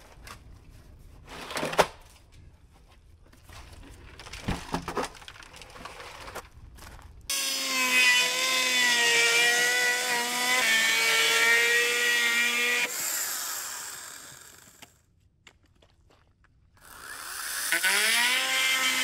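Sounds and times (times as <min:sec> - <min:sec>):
power saw running: 0:07.3 - 0:14.9.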